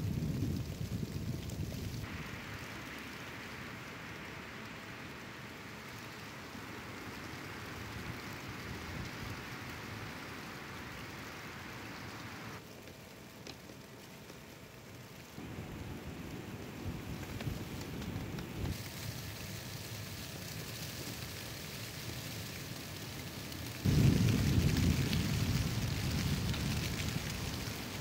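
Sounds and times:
wind rumble on microphone: 0.0 - 4.9, 6.6 - 12.6, 15.4 - 18.8, 23.8 - 28.0
snowstorm hiss: 0.0 - 28.0.

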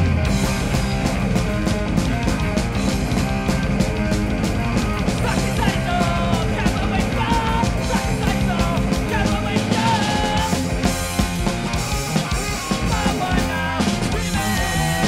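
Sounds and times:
punk rock band playing: 0.0 - 15.0
singer shouting vocals: 5.2 - 10.7, 12.2 - 15.0.

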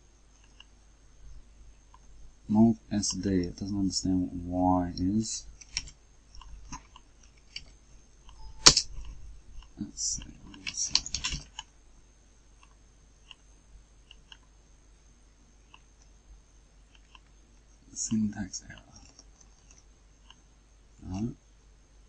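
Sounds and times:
mouse clicks: 0.4 - 0.7
keyboard keystrokes: 5.6 - 11.7.

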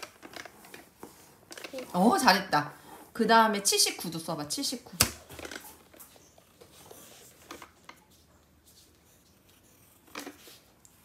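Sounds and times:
pencil scratching on paper: 8.1 - 10.7.

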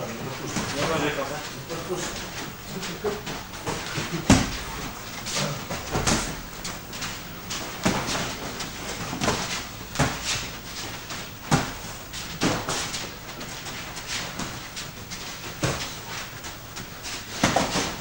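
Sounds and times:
boxing gloves thudding: 3.6 - 4.9, 7.5 - 10.6, 17.3 - 18.0.

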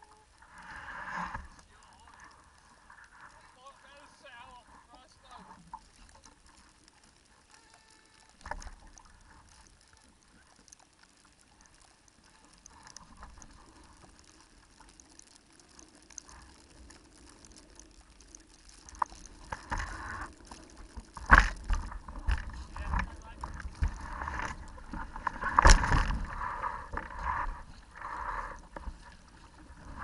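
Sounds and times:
water washing along hull: 0.0 - 30.0
low rumbles and thumps: 18.8 - 30.0.

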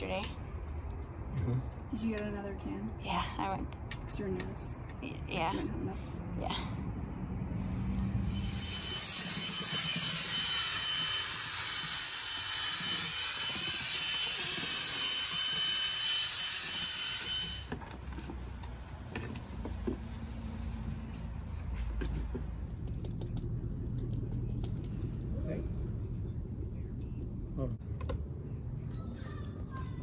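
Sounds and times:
electric drill mixer whining: 8.2 - 17.8.

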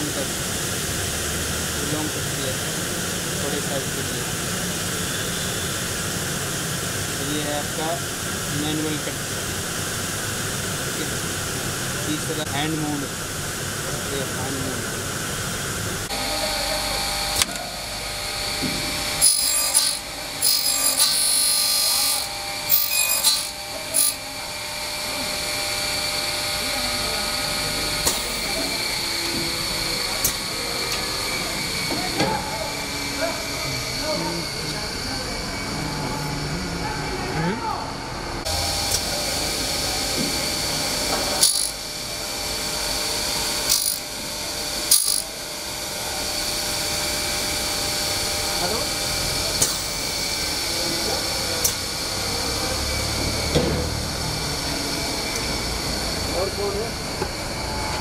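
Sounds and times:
circular saw whining: 0.0 - 58.0
motor whirring: 16.0 - 36.7, 38.4 - 58.0
cutter blade rasping into plastic: 19.2 - 24.2.

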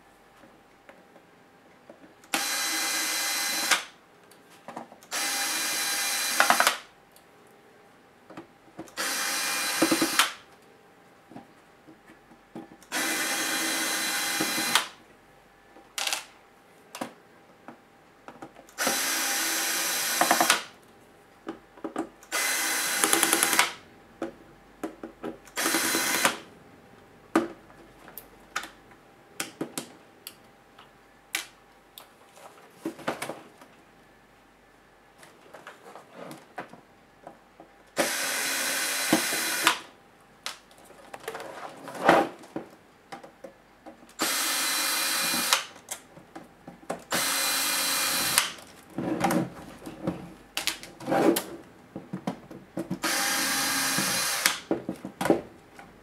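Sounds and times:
electric screwdriver whirring: 2.3 - 3.9, 5.1 - 6.8, 9.0 - 10.4, 12.9 - 14.9, 18.8 - 20.6, 22.3 - 23.8, 25.6 - 26.4, 38.0 - 39.8, 44.2 - 45.7, 47.1 - 48.6, 53.0 - 54.7.

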